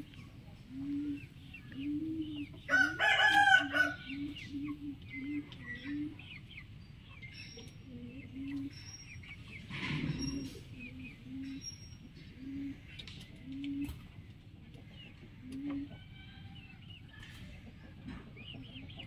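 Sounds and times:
small birds chirping: 0.0 - 19.0
rooster crowing: 2.7 - 4.1.

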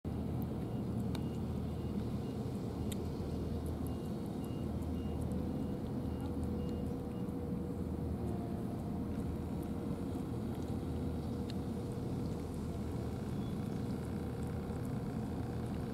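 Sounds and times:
motor vehicle engine rumbling: 0.1 - 15.9
faint ticks: 0.4 - 2.2, 2.8 - 7.0
faint high beep: 3.8 - 7.3.

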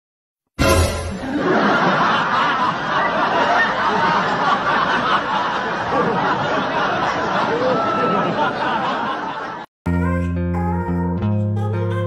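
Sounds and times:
group of people laughing: 1.1 - 9.7.

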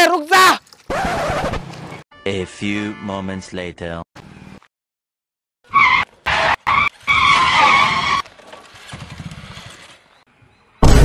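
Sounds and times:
motorcycle tyres screeching: 0.9 - 2.0, 5.7 - 10.2.

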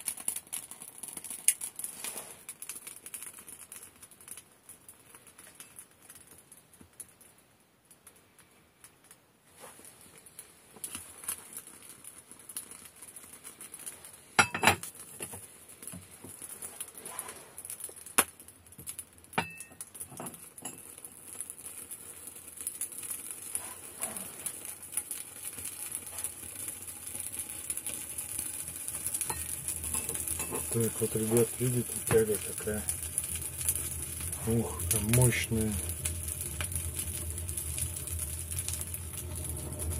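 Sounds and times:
fire crackling in a stove: 0.0 - 39.9
iron hotplate rings clinking: 14.4 - 14.8, 19.4 - 20.8, 29.2 - 30.8.

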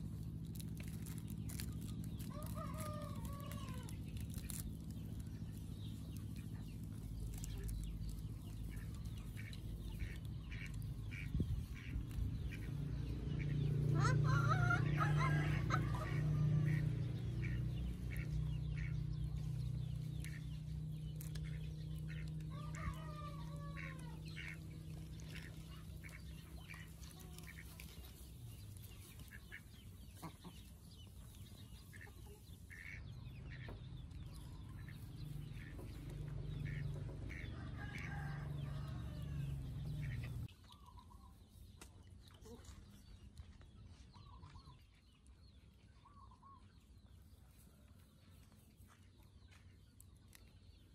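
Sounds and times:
steady low rumble: 0.0 - 40.5
chickens clucking: 0.0 - 50.9.

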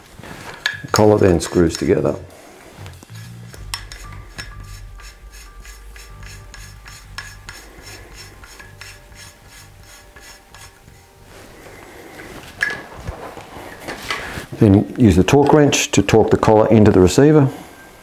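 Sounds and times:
metal rubbing with light ticks: 2.8 - 11.1.

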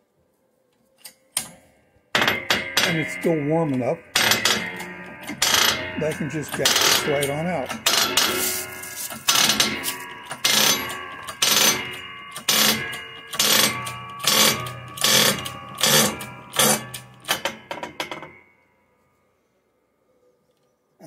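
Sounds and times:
bottle jack pumping metallic clanks: 2.2 - 18.1.

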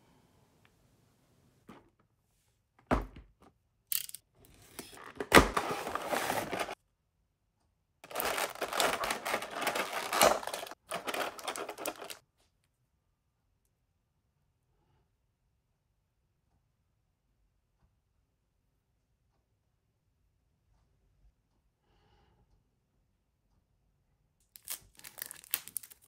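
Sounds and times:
plastic crackling and rustling: 4.6 - 6.8, 8.0 - 12.2, 24.6 - 26.0.

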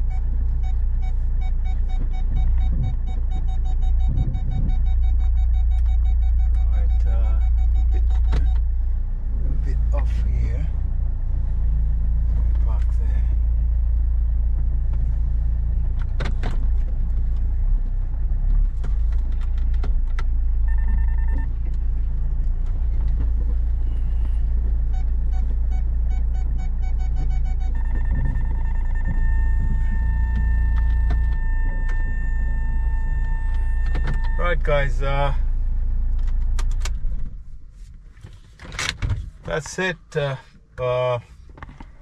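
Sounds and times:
quick electronic beeps: 0.0 - 8.6, 20.7 - 21.5, 24.9 - 34.4
car engine idling: 0.0 - 38.6
electronic tones: 1.4 - 8.6, 24.9 - 34.4.

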